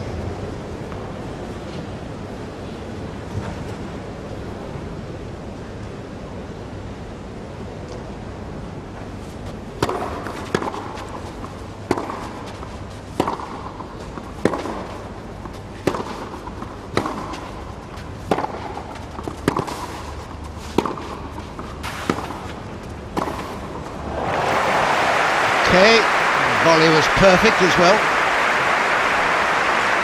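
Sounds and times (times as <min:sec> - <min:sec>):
racquet hitting tennis ball: 0:09.8 - 0:30.0
crowd applause: 0:23.8 - 0:30.0
crowd hiss: 0:23.8 - 0:30.0.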